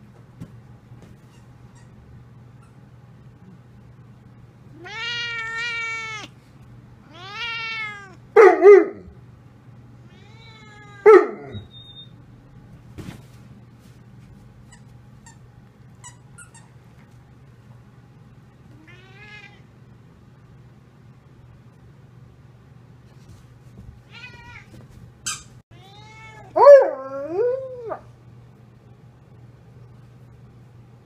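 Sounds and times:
cat meowing: 0:04.7 - 0:06.3, 0:07.0 - 0:08.2, 0:10.1 - 0:11.7, 0:18.8 - 0:19.6, 0:24.1 - 0:24.7, 0:25.7 - 0:26.6
dog barking: 0:08.4 - 0:09.1, 0:11.0 - 0:11.6.

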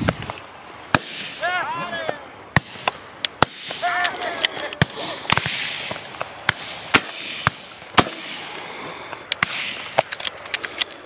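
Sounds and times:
distant shotgun shots: 0:00.9 - 0:01.4, 0:04.8 - 0:08.5, 0:09.4 - 0:09.9
loud close shotgun shots: 0:04.8 - 0:05.9, 0:06.5 - 0:08.5.

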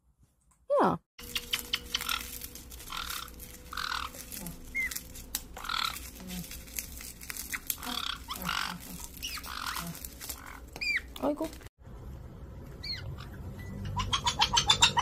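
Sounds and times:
parrot chirps: 0:01.2 - 0:06.2, 0:07.5 - 0:11.1, 0:12.8 - 0:15.0
parrots squawking: 0:01.2 - 0:11.2, 0:12.8 - 0:15.0.

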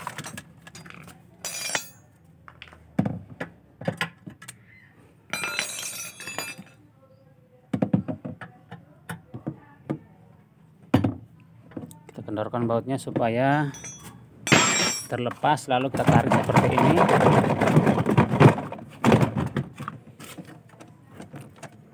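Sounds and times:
metal tools clinking and knocking: 0:00.0 - 0:02.7, 0:05.3 - 0:06.8, 0:13.5 - 0:15.4
ringing metallic clatter: 0:00.8 - 0:02.0, 0:05.3 - 0:06.7, 0:13.7 - 0:15.2.

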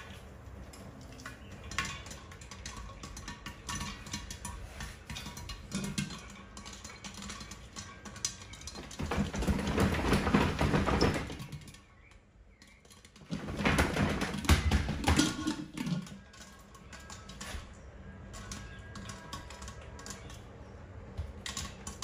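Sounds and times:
popcorn popping in a pot: 0:00.0 - 0:22.0
pot being shaken: 0:01.0 - 0:11.7.

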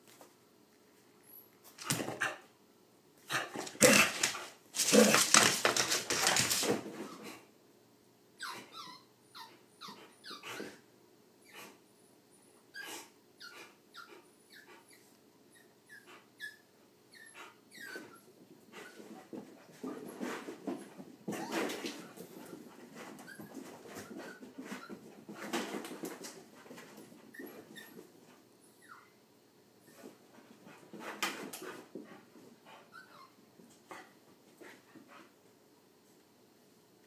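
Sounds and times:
dogs play-barking and growling: 0:03.2 - 0:07.4, 0:08.4 - 0:10.9, 0:17.2 - 0:28.2
dogs scuffling: 0:03.4 - 0:07.3
dog yips and whimpers: 0:08.4 - 0:10.8, 0:12.7 - 0:19.0, 0:28.7 - 0:29.2, 0:32.9 - 0:33.4.

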